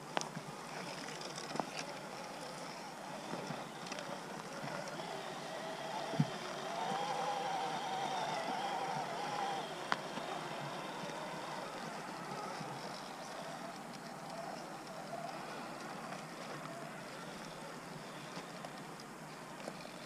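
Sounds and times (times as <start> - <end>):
electric motor and gears whining: 2.7 - 14.6.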